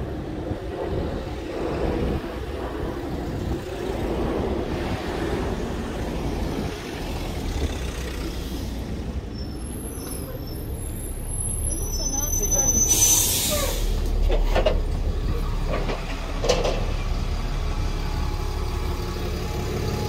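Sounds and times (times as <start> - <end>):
cars passing on road: 0.0 - 20.0
bus brakes squealing: 9.2 - 14.2.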